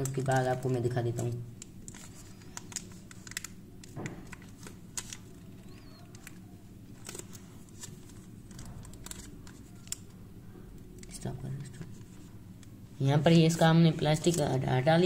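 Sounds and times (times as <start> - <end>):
plastic wrapper crinkling: 0.0 - 10.2, 10.8 - 15.0.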